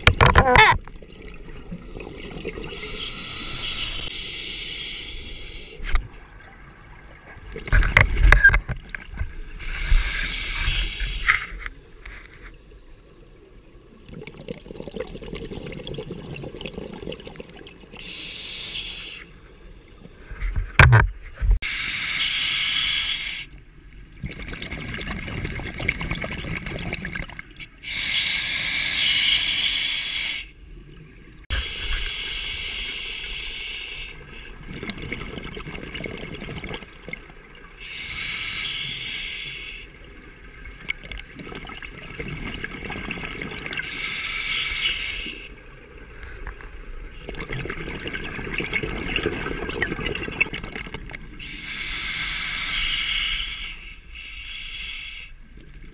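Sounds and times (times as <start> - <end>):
diver inhaling through regulator: 2.7 - 5.8, 9.6 - 11.6, 18.0 - 19.3, 21.6 - 23.5, 27.8 - 30.6, 31.6 - 34.5, 37.8 - 39.9, 43.8 - 45.5, 51.4 - 55.4
bubbling exhalations: 34.6 - 37.3, 47.2 - 51.2.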